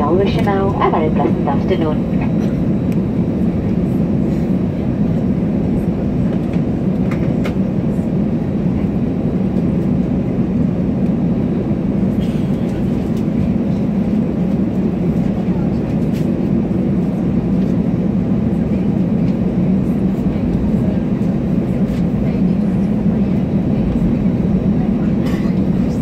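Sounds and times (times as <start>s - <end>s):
jet engines humming at idle: 0.0s - 26.0s
wheels rumbling on taxiway: 0.0s - 26.0s.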